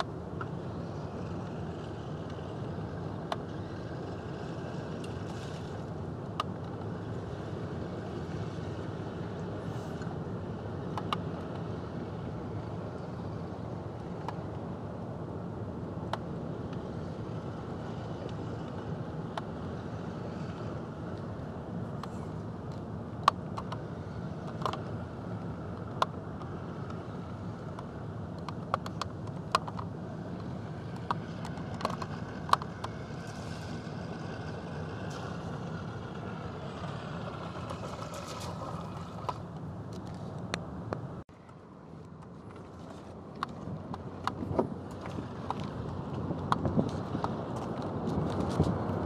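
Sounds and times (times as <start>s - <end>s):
vehicle engine idling: 26.6s - 41.2s.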